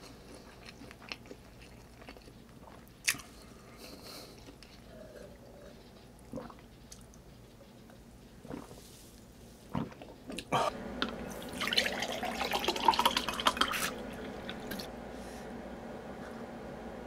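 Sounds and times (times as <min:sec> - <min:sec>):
water pouring into a glass mug: 0:11.4 - 0:14.0.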